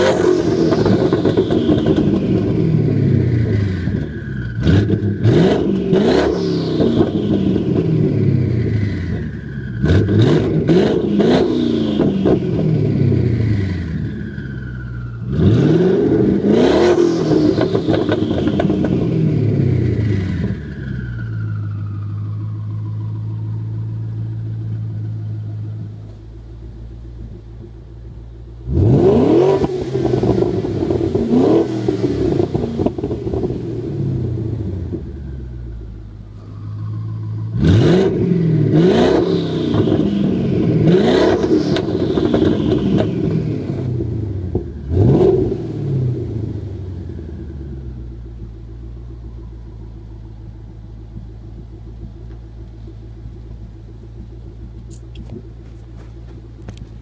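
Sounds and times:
car engine revving: 0.0s - 57.0s
engine lumpy idle: 17.3s - 28.8s, 32.6s - 37.6s, 46.2s - 57.0s.

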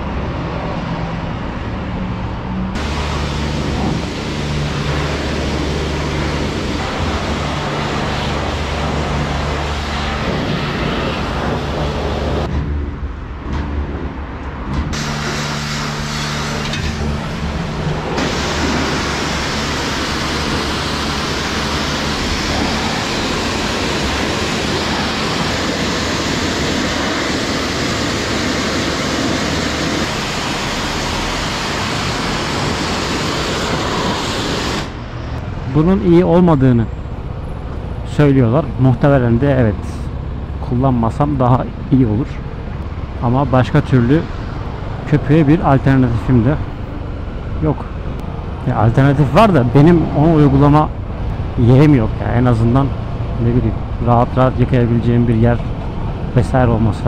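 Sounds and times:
car wash machine hum: 0.0s - 13.4s, 14.0s - 41.9s, 42.5s - 56.6s
pressure washer spraying water: 2.8s - 12.5s, 14.9s - 35.0s.

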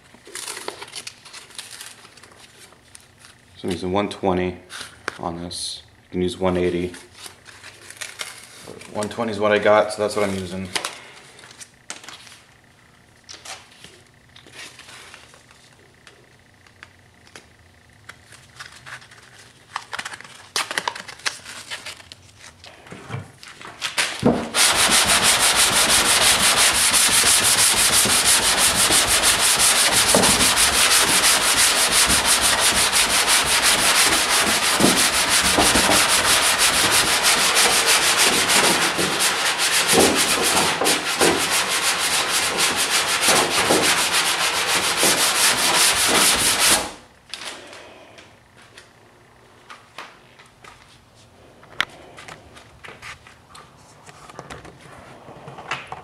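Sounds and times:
sanding block rasping: 24.5s - 47.0s.

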